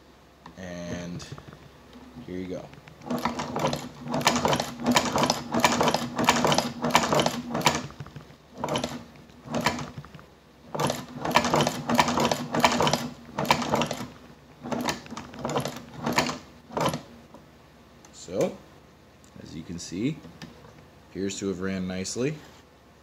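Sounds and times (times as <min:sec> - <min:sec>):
sewing machine stitching leather: 0:02.9 - 0:17.2.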